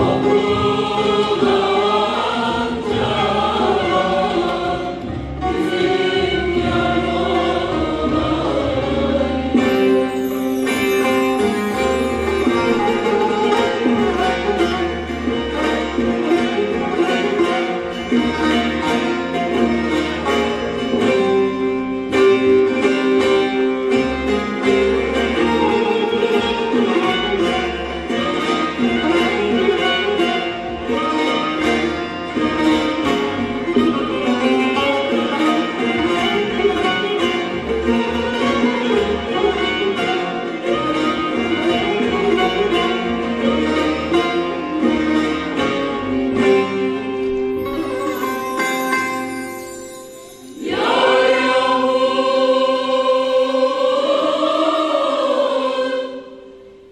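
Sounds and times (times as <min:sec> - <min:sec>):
bowed strings: 0:08.8 - 0:52.2
plucked strings: 0:09.5 - 0:51.4.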